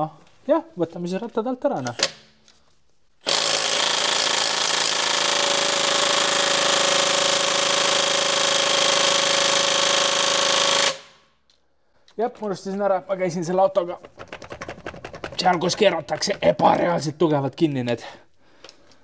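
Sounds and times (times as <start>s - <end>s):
impact wrench hammering: 3.2s - 11.2s.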